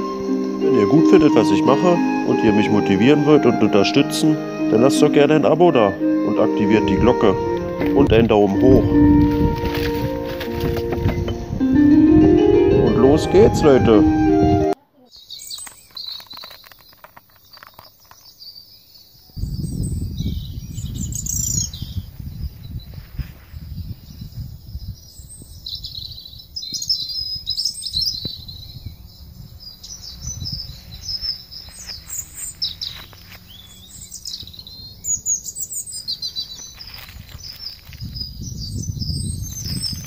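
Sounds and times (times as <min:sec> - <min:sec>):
songbirds chirping and trilling: 0:00.0 - 0:40.0
litter rustling: 0:08.2 - 0:11.4
low rumble on microphone: 0:19.4 - 0:26.8.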